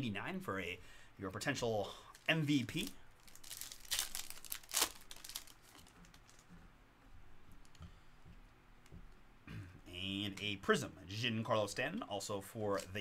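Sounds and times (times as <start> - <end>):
foil wrapper tearing and crinkling: 2.1 - 6.4.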